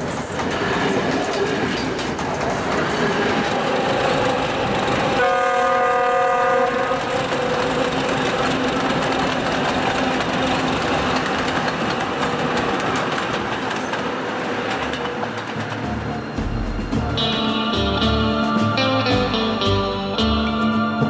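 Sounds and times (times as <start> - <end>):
train rumbling past: 0.0 - 19.6
train horn blast: 5.2 - 8.1.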